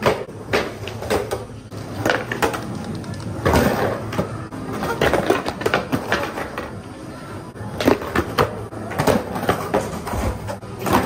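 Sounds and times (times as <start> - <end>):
skateboard clacks and knocks: 2.0 - 6.8.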